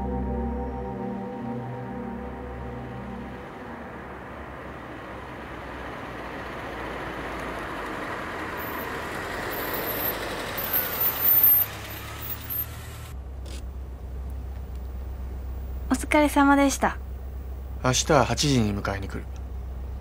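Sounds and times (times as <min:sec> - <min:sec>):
car approaching: 0:00.0 - 0:20.0
low engine hum inside car: 0:13.1 - 0:20.0.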